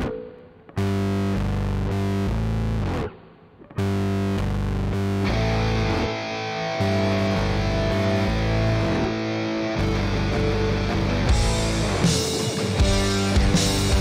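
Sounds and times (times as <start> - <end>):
distorted electric guitar chords: 0.0 - 14.0
rock band playing: 5.2 - 14.0.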